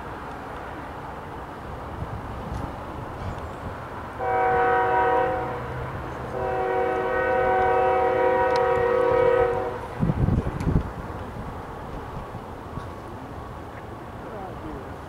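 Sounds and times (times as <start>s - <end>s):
low rumble of train: 0.0s - 15.0s
locomotive air horn blasts: 4.2s - 9.9s.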